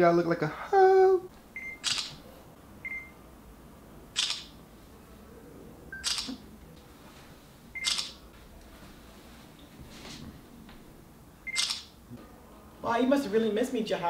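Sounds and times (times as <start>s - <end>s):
camera shutter: 1.8s - 2.2s, 4.2s - 4.6s, 6.0s - 6.4s, 7.8s - 8.2s, 11.5s - 11.9s.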